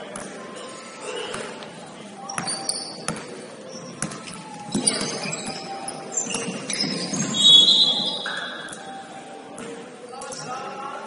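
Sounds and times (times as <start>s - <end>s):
shoes squeaking on gym floor: 2.2s - 10.6s
high-pitched shoe squeal: 2.4s - 3.1s, 3.7s - 8.8s
ball bouncing: 2.4s - 3.3s, 4.0s - 5.6s.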